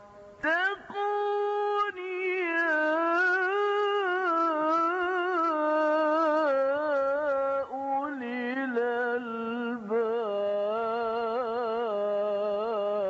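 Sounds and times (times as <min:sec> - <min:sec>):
solo voice singing slow melody: 0:00.0 - 0:13.0.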